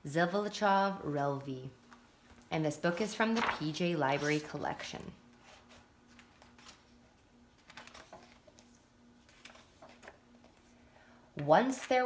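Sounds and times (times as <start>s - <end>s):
paper pages being turned: 3.1s - 10.8s.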